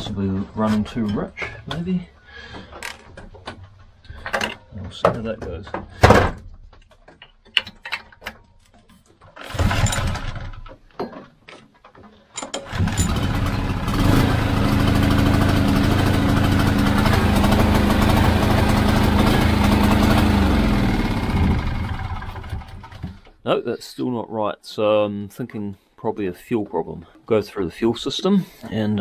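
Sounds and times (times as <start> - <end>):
engine pull-start clatter: 9.3 - 10.8, 12.4 - 23.4
petrol engine running: 12.7 - 23.1.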